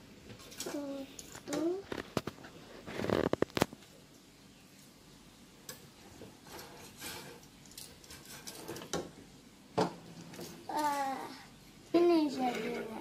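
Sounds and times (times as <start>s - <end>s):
soft scraping and rustling: 0.3s - 4.1s, 5.9s - 9.0s, 10.0s - 11.3s, 12.0s - 13.0s.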